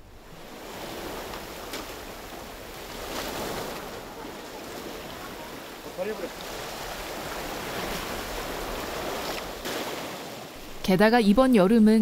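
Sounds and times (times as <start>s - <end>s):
sea surf washing over rocks: 0.0s - 10.7s.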